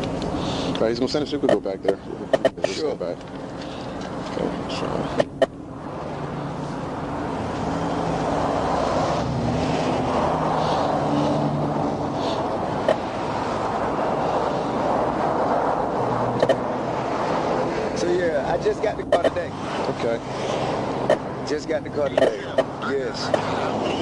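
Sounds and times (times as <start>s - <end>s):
passing highway traffic: 0.0s - 24.0s
sharp click: 16.4s - 16.6s.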